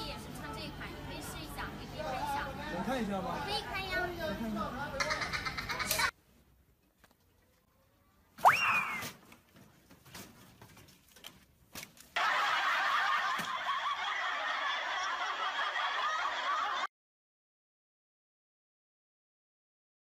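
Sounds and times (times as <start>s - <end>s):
canned laughter: 12.2s - 16.9s.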